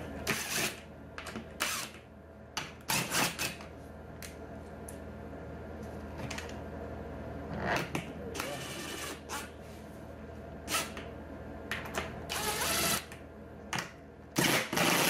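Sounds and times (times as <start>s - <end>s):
steady low hum: 0.0s - 15.0s
impact driver bursts: 14.4s - 15.0s.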